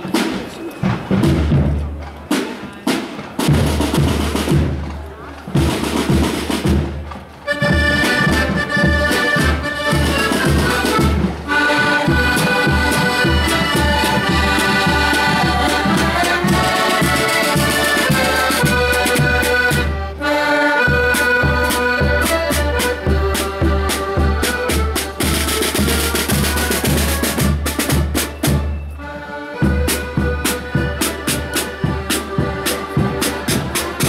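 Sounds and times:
snare and bass drums: 0.0 - 20.0, 20.9 - 29.0, 29.6 - 34.0
accordions playing chords: 7.4 - 34.0.

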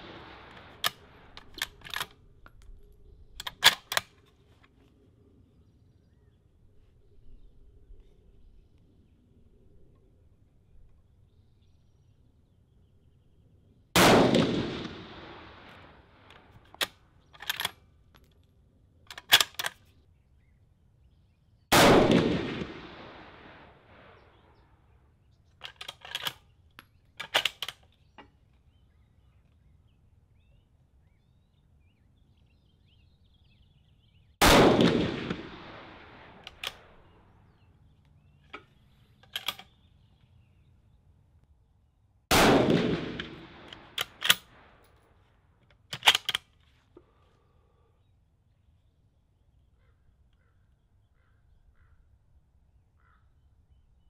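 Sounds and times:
rifle shots: 0.0 - 2.1, 14.0 - 17.8, 21.7 - 24.4, 34.4 - 37.2, 42.3 - 44.9
rifle bolt clicking: 0.5 - 2.8, 3.4 - 4.3, 16.3 - 18.4, 19.1 - 19.9, 25.6 - 28.0, 36.4 - 36.9, 38.5 - 39.8, 43.2 - 44.5, 45.7 - 46.5.

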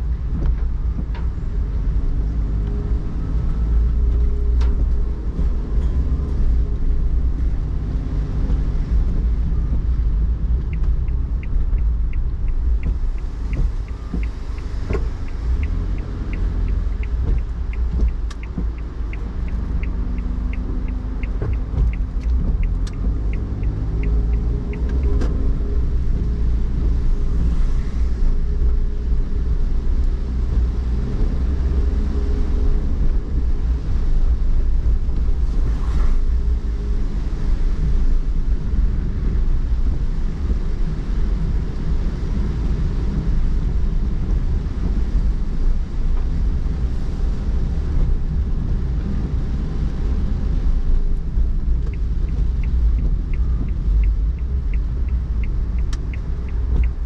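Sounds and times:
car road and engine rumble: 0.0 - 57.0
light regular ticking: 3.8 - 31.8, 36.2 - 57.0
tyres hissing on wet road: 12.9 - 56.9.

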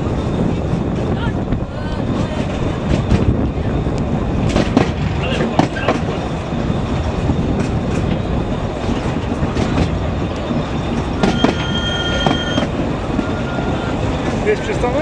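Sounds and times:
rail joint clicks: 0.0 - 15.0
train wheels rumbling on track: 0.0 - 15.0
high multi-tone squeal: 6.1 - 14.9.

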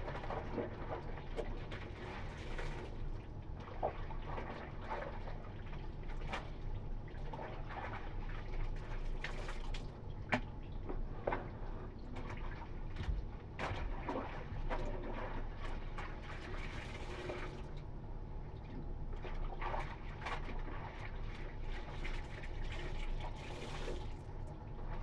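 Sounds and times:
water pouring into tub: 16.4 - 17.7, 21.8 - 24.3
water splashing in basin: 19.4 - 24.3.

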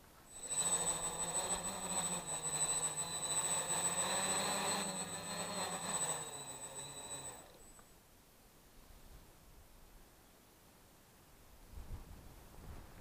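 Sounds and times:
drone propellers whirring: 0.3 - 7.7
high-pitched motor whine: 0.3 - 7.9.

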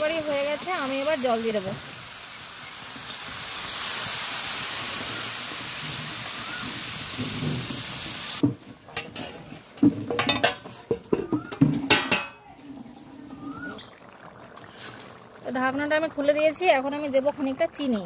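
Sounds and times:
water sizzling in a hot pan: 0.0 - 18.0
ladle stirring: 8.6 - 15.3.

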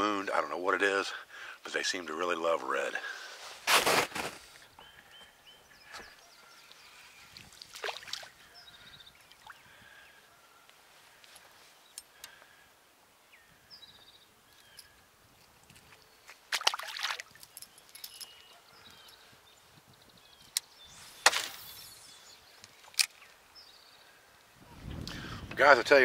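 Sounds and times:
faint bird chirps: 4.7 - 7.6, 8.3 - 12.6, 13.2 - 15.1, 17.5 - 25.0
water splashing: 7.4 - 8.4, 16.5 - 17.4.

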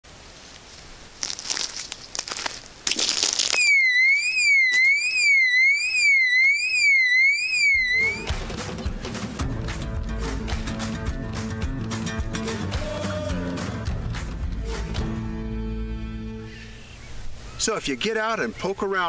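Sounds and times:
rustling and scuffing: 0.1 - 3.6
electronic alarm warbling: 3.6 - 8.3.

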